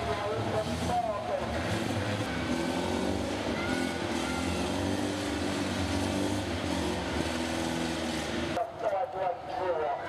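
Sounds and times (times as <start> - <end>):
van engine running: 0.0 - 8.6.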